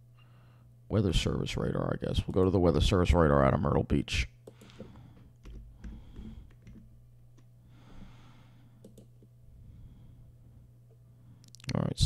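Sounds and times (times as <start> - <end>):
keyboard and mouse clicks: 4.4 - 6.9, 8.8 - 9.2.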